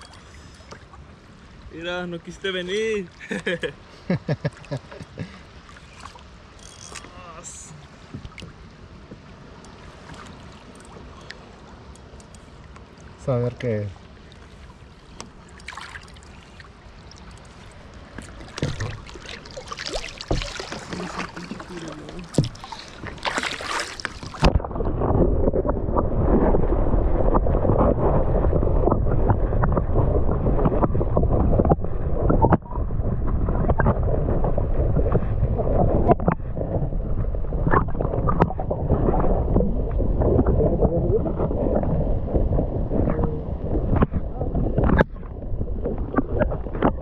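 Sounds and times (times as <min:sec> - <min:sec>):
water sloshing and splashing: 0:00.0 - 0:03.6, 0:04.4 - 0:47.0
muffled underwater rumble: 0:17.5 - 0:47.0.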